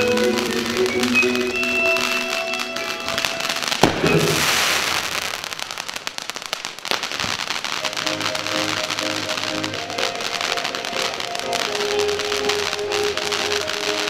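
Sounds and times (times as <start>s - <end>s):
show music: 0.0s - 4.8s, 7.8s - 14.0s
firework bangs: 0.0s - 14.0s
hissing crackle of fireworks: 0.0s - 14.0s.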